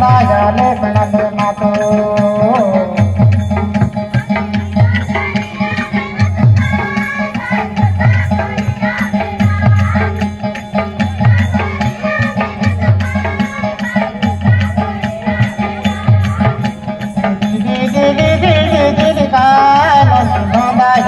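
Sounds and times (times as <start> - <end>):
person singing: 0.0 - 3.2, 17.4 - 21.0.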